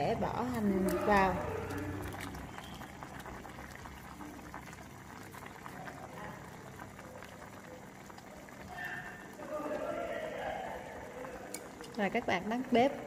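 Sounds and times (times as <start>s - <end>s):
soup bubbling in a pot: 0.0s - 13.0s.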